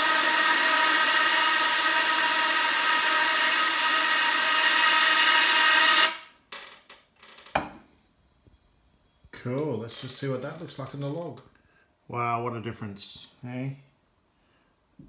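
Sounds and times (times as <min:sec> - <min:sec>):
compressed air duster hissing: 0:00.0 - 0:06.3.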